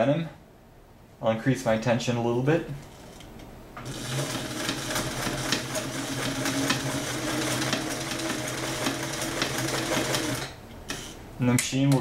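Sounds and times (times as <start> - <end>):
sewing machine motor hum: 3.8 - 10.6.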